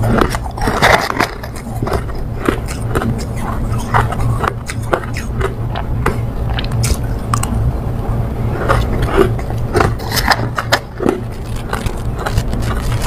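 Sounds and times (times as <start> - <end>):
steady low hum: 0.0 - 13.0
crushed ice crunching in mouth: 8.6 - 13.0.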